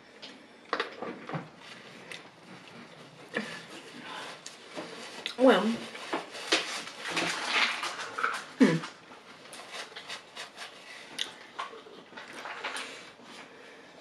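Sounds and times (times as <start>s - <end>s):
person chewing: 11.0s - 12.4s.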